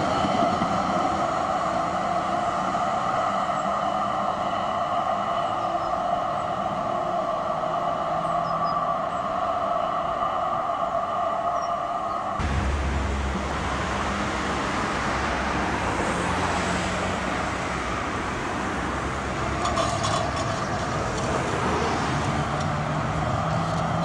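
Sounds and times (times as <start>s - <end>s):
cars driving past: 12.4s - 24.0s.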